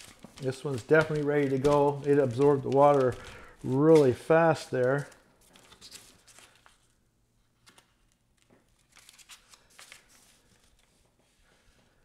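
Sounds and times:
wet paper peeling and crinkling: 0.0 - 6.8.

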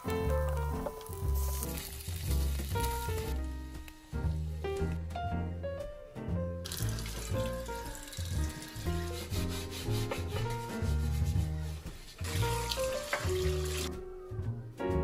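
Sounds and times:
tap water running onto pan: 0.0 - 5.1, 6.6 - 11.2, 11.8 - 14.0
background music with bass: 0.0 - 15.0
brush scrubbing pan: 7.0 - 13.9.

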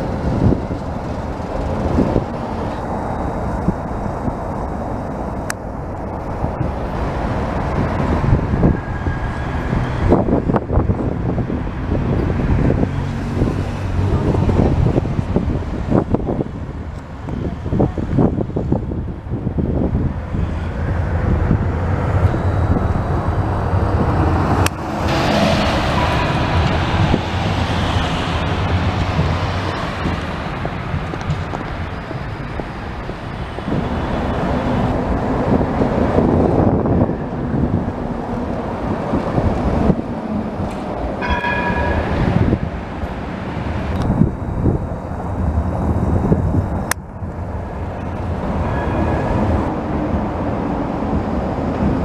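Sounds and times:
street traffic: 0.0 - 52.0
tram wheels and motors rumbling: 0.0 - 52.0
tram gong: 20.6 - 31.5, 39.4 - 45.9, 47.7 - 52.0.

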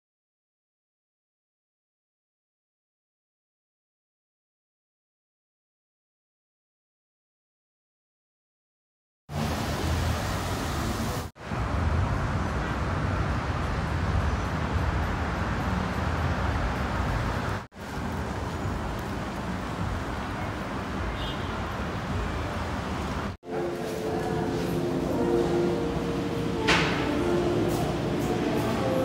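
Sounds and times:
road traffic rumble: 9.3 - 29.0.

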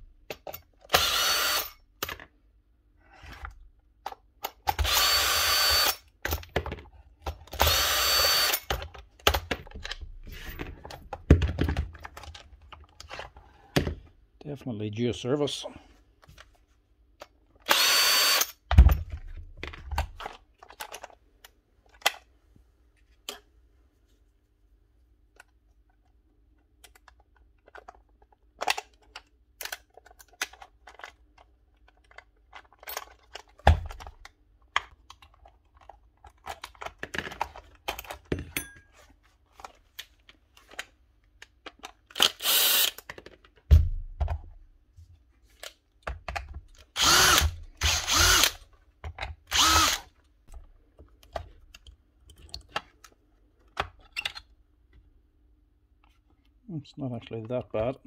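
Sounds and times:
power drill running: 0.9 - 1.8, 4.8 - 6.0, 7.6 - 8.6, 17.7 - 18.5, 42.2 - 43.0, 47.0 - 48.6, 49.5 - 50.1.

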